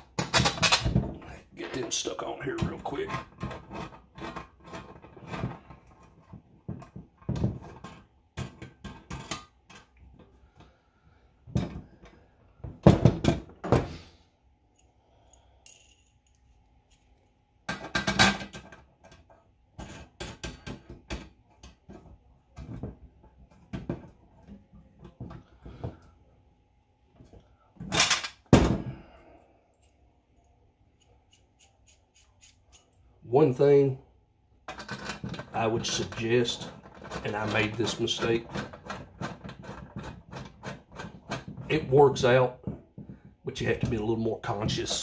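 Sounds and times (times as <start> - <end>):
metal clinks and clicks: 14.8 - 17.1.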